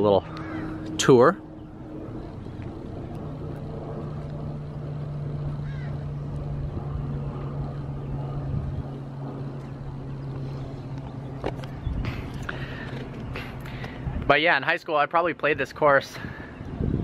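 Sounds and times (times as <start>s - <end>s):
low rumble: 0.0s - 14.3s
low machine hum: 0.0s - 17.0s.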